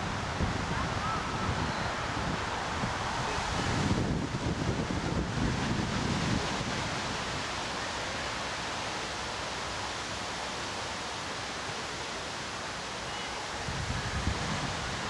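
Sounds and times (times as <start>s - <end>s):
wind rumble on microphone: 0.0s - 7.5s, 13.6s - 15.0s
outdoor background hiss: 0.0s - 15.0s.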